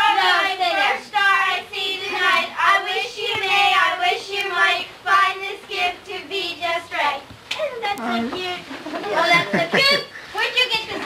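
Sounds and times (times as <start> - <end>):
child singing: 0.0 - 10.0
children's voices: 7.6 - 11.0.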